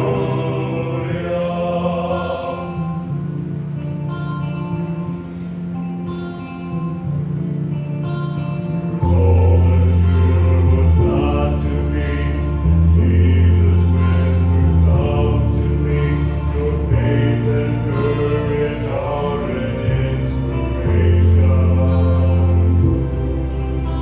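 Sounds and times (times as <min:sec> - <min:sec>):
men singing a hymn in harmony: 0:00.0 - 0:03.2, 0:08.9 - 0:23.4
sustained accompanying chords: 0:00.0 - 0:24.0.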